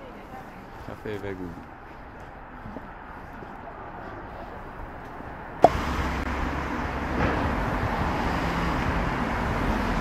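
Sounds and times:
road traffic rumble: 0.0 - 10.0.

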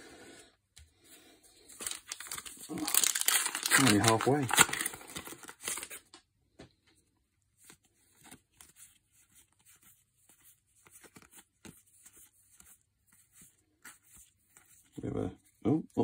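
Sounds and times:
cards being leafed through: 1.7 - 6.1, 7.6 - 14.9
foil wrapper crinkling: 1.7 - 6.1.

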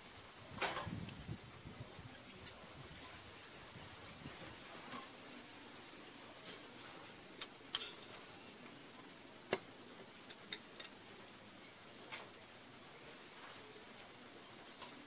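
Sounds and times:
faint hiss: 0.0 - 15.0.

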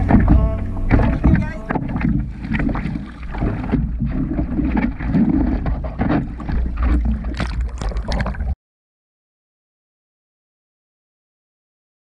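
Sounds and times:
sea water sloshing and splashing: 0.0 - 8.6.

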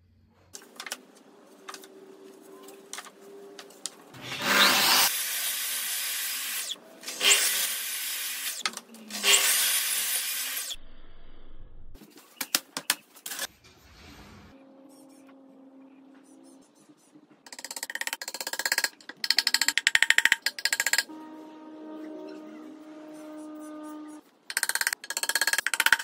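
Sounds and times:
mitre saw cutting boards: 4.2 - 10.7.

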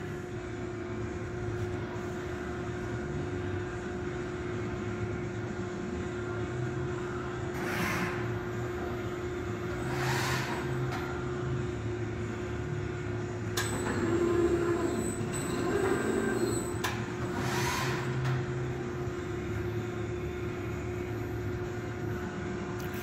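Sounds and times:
machine motor hum: 13.0 - 23.0.

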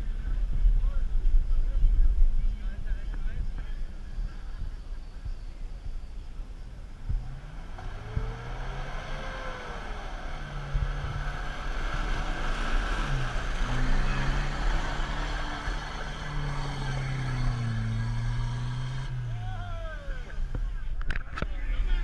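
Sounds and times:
suv engine revving in mud: 7.1 - 20.6.

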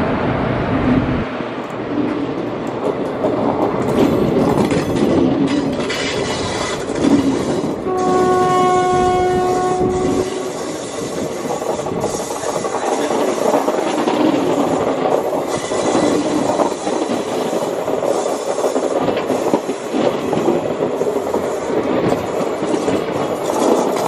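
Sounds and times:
train wheels clattering on rails: 1.6 - 24.0
train horn: 7.8 - 10.8.

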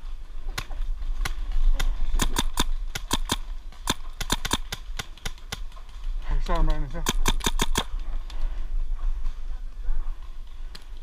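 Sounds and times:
paintball markers firing: 0.5 - 5.8, 6.6 - 8.0.

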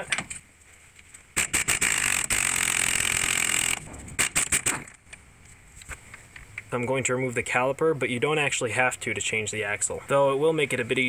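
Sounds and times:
pneumatic impact wrench hammering: 1.4 - 5.0.

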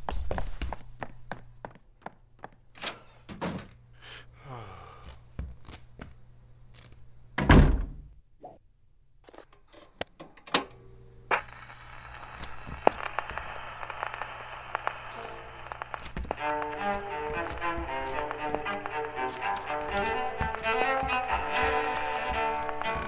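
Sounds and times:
footsteps: 0.0 - 2.6, 11.4 - 13.6, 14.7 - 23.0
record surface crackle and hiss: 11.2 - 23.0.

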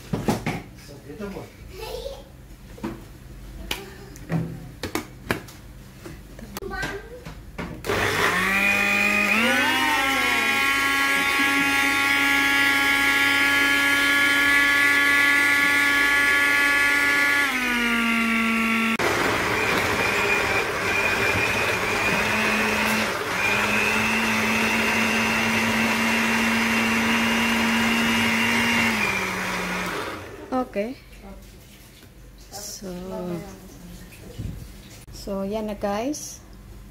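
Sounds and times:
blender motor whining: 7.8 - 30.6.

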